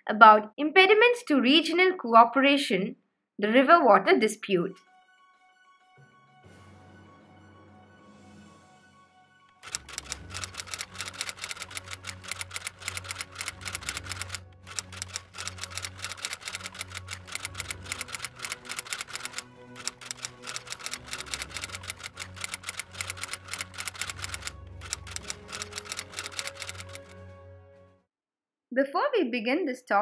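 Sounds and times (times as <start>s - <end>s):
typewriter keys clicking: 9.6s - 27.1s
soft background music with bass: 9.7s - 28.0s.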